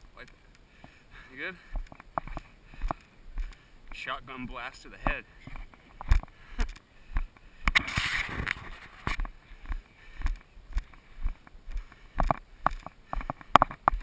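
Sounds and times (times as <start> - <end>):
footsteps jogging on dirt trail: 0.0 - 14.0
short rush of noise: 7.8 - 9.2.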